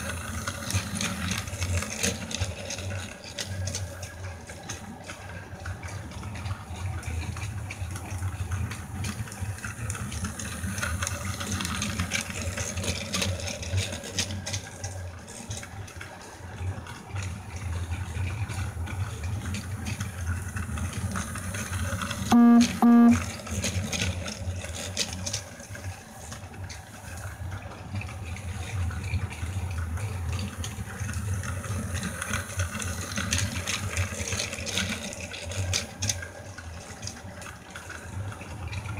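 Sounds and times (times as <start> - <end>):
short loud beeps: 22.4 - 23.2.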